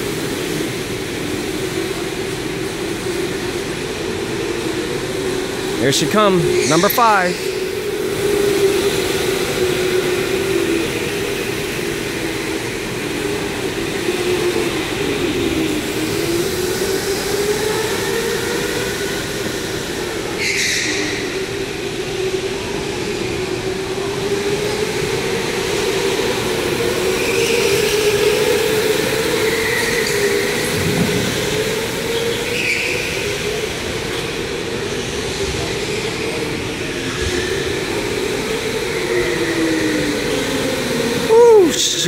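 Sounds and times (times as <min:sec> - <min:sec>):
electric go-kart motor whine: 0:07.4 - 0:41.4.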